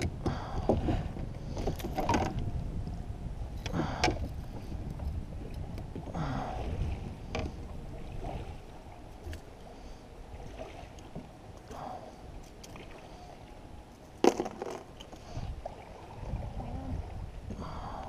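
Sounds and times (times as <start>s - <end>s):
wind on microphone: 0.0s - 9.5s, 15.0s - 18.0s.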